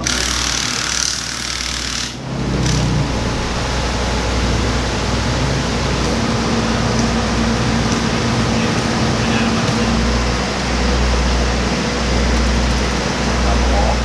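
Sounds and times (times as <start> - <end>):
mechanical drone with hiss: 0.0 - 14.0.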